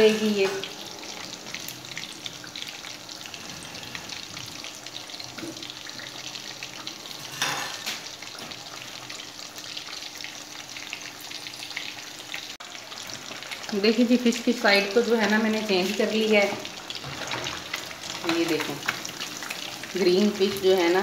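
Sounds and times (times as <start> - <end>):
fish sizzling in hot oil: 0.0 - 21.0.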